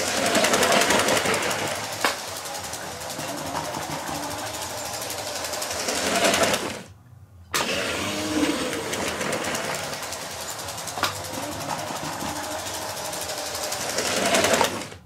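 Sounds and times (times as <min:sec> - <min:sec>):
toy train wheel clatter: 0:00.0 - 0:06.8, 0:08.5 - 0:15.0
toy train motor whirring: 0:00.0 - 0:06.9, 0:07.6 - 0:15.0.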